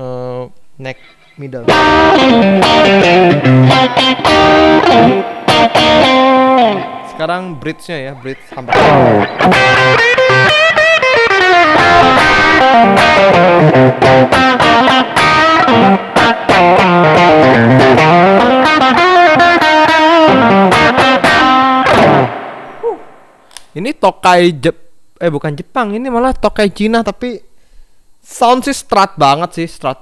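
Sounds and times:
overdriven electric guitar: 0:01.6 - 0:07.2, 0:08.5 - 0:23.2.

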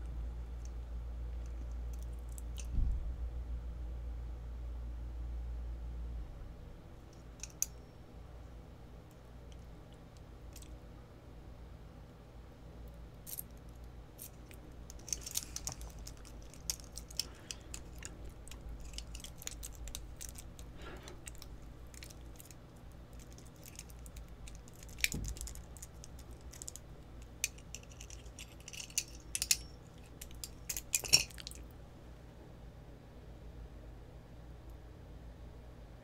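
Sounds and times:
faint steady hum: 0:00.0 - 0:36.0
metal clicks and rattles of lock: 0:23.2 - 0:26.8, 0:27.4 - 0:31.6.

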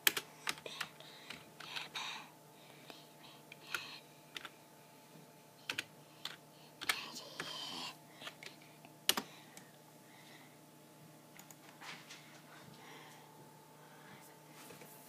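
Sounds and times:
computer keyboard typing: 0:00.0 - 0:01.9, 0:03.7 - 0:04.5, 0:05.7 - 0:07.6, 0:08.2 - 0:09.3.

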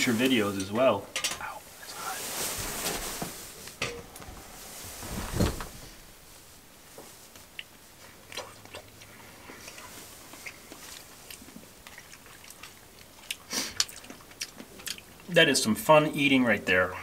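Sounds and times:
person chewing: 0:07.5 - 0:15.4.

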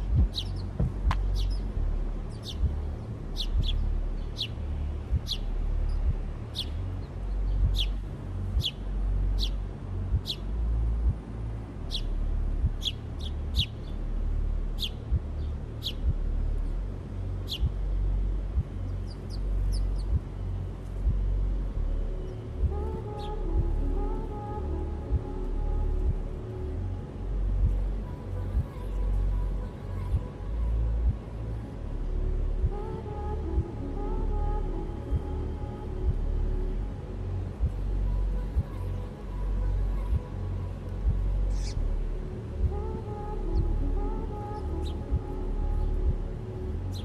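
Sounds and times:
sparrows chirping: 0:00.0 - 0:10.6, 0:11.8 - 0:14.1, 0:14.7 - 0:18.1, 0:18.7 - 0:21.1, 0:41.5 - 0:41.8
low fluctuating rumble: 0:00.0 - 0:47.0.

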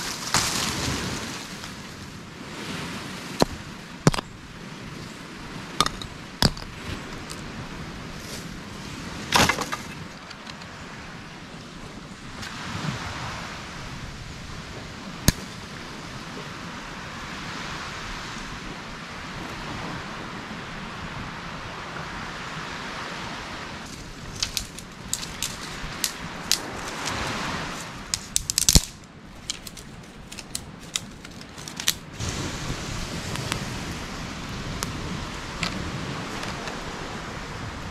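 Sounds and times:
surf and wind hissing: 0:00.0 - 0:37.9
twig fire crackling and popping: 0:15.2 - 0:15.7, 0:23.8 - 0:32.4, 0:33.0 - 0:36.8.

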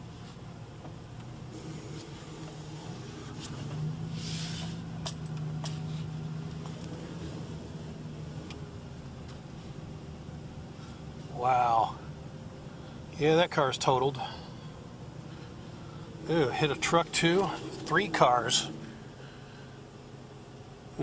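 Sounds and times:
truck engine running: 0:00.0 - 0:21.0
brief hiss: 0:04.1 - 0:04.8.

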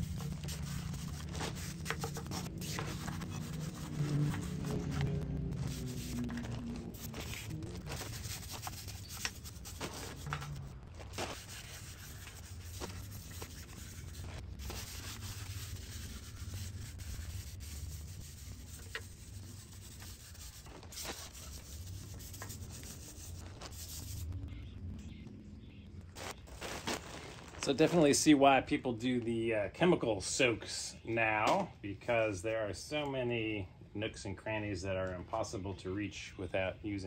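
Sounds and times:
brush scrubbing metal: 0:00.0 - 0:24.3.

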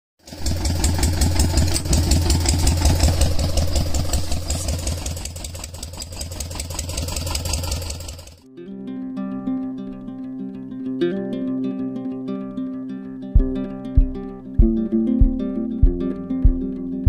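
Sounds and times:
tractor engine chugging: 0:00.2 - 0:08.5.

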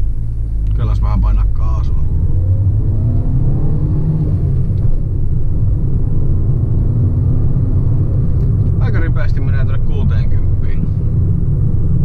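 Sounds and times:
car engine accelerating: 0:00.0 - 0:12.0.

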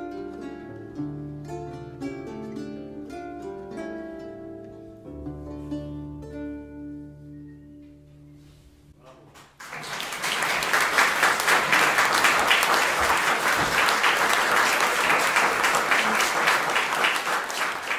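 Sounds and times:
plucked harp and lute: 0:00.0 - 0:08.8
audience applause: 0:09.6 - 0:17.9.

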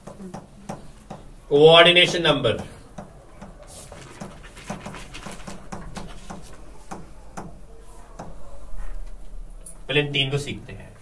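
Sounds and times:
pen tapping and scratching on screen: 0:00.0 - 0:01.3, 0:02.6 - 0:08.4.

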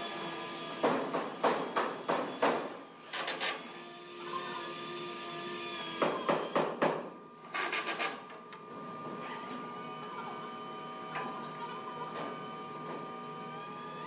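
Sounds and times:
machine hum: 0:02.9 - 0:14.0.

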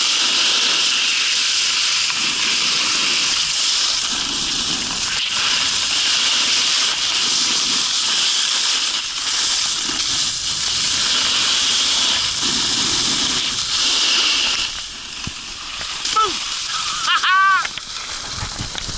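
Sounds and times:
snowboard sliding over snow: 0:00.0 - 0:18.9
edges scraping snow: 0:02.1 - 0:15.5.

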